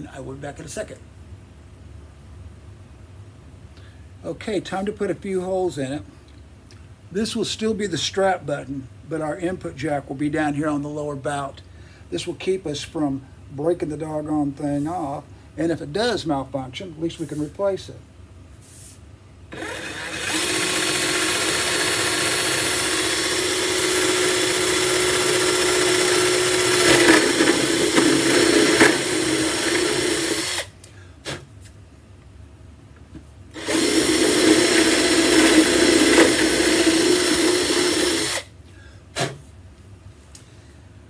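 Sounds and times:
cordless drill motor running: 0:19.5 - 0:30.7, 0:33.6 - 0:38.5
drill bit clicks: 0:19.5 - 0:30.7, 0:33.6 - 0:38.4.

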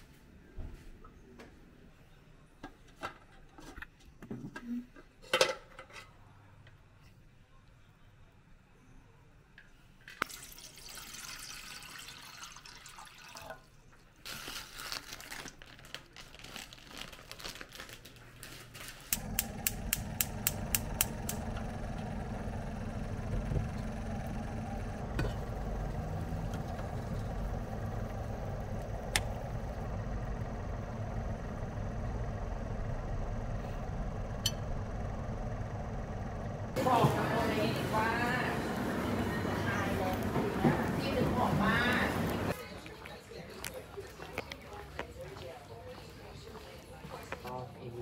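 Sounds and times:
tap water filling metal pot: 0:10.2 - 0:13.7
gas igniter clicking rapidly: 0:19.1 - 0:24.0, 0:28.8 - 0:29.4
gas burner flame rushing: 0:19.1 - 0:42.6.

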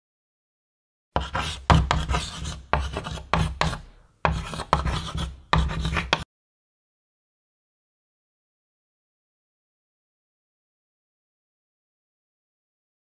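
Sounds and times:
chalk scratching on blackboard: 0:01.2 - 0:06.2.

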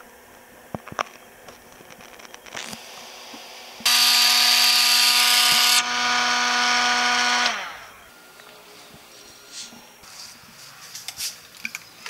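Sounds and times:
electric alarm siren buzzing: 0:03.8 - 0:10.0.

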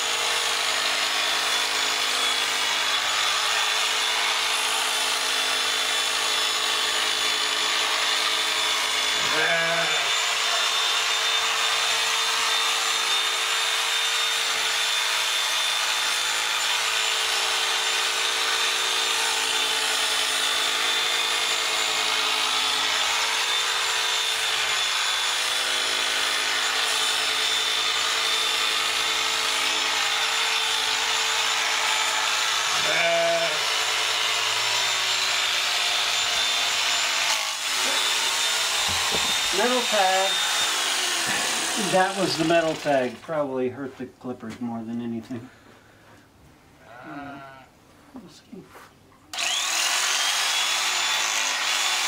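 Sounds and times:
electric shearing clippers running: 0:00.0 - 0:43.2, 0:49.3 - 0:52.0
sheep bleating: 0:09.2 - 0:10.2, 0:32.8 - 0:33.6.

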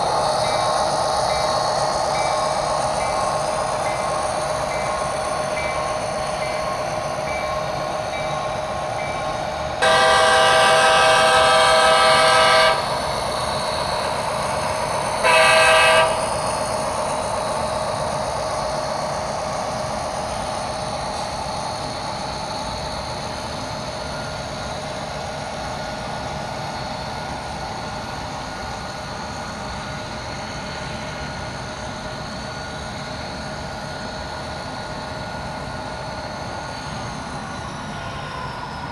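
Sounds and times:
model locomotive running: 0:00.0 - 0:38.9.

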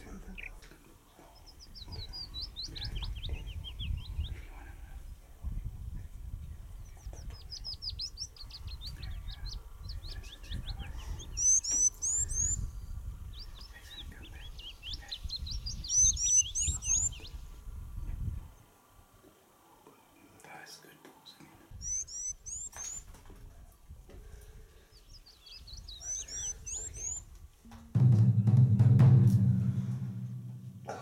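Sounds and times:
small birds chirping: 0:00.0 - 0:27.5
bird song bursts: 0:01.2 - 0:05.2, 0:06.7 - 0:18.2, 0:21.7 - 0:23.1, 0:24.8 - 0:27.3
steady low rumble: 0:25.7 - 0:31.0.

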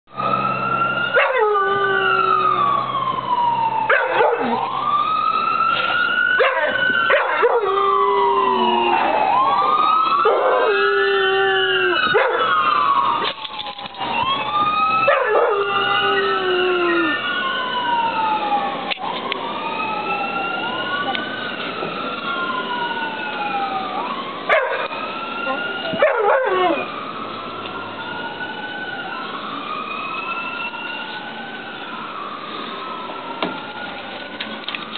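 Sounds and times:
sirens wailing: 0:00.1 - 0:34.9
dog howling: 0:01.1 - 0:02.8, 0:03.9 - 0:04.7, 0:06.4 - 0:13.3, 0:14.3 - 0:17.2, 0:25.5 - 0:26.9.

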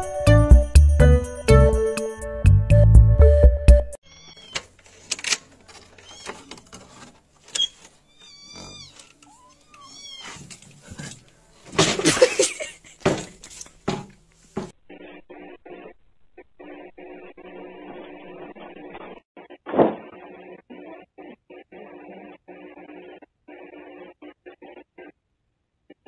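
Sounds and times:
cat meowing: 0:04.0 - 0:04.6, 0:06.0 - 0:06.5, 0:08.1 - 0:10.5.

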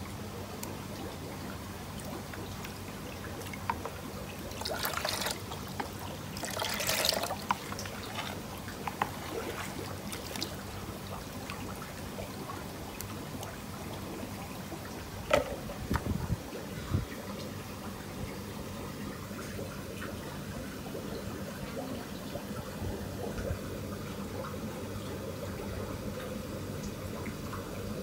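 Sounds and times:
water trickling over concrete: 0:00.0 - 0:28.0
water splashes: 0:00.1 - 0:18.5.

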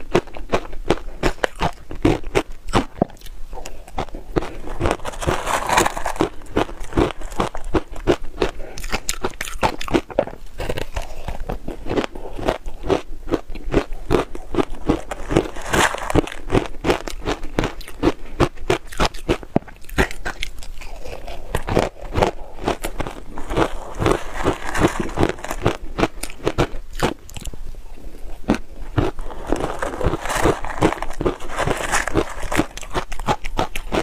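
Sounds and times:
chewing crisp ice: 0:00.0 - 0:34.0.

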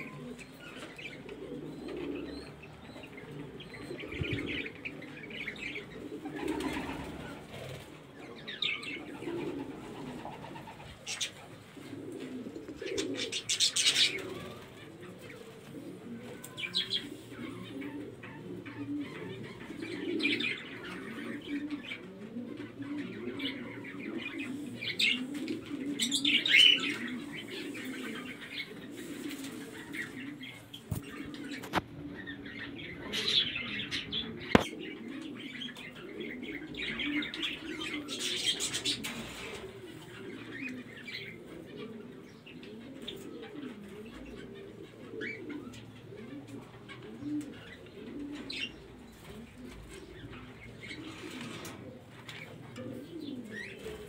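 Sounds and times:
birds chirping: 0:00.0 - 0:54.0
doves cooing: 0:00.0 - 0:54.0.

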